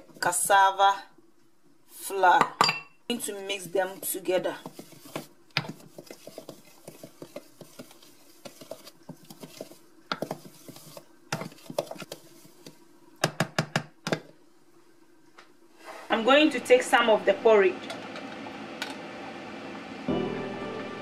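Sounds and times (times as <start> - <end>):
spoon tapping and scraping jug: 3.9 - 14.2.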